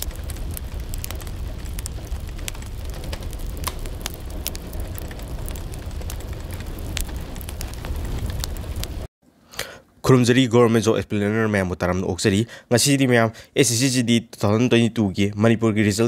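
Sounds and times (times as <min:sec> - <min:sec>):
low rumble: 0:00.0 - 0:09.1
sharp crackles: 0:00.0 - 0:09.1.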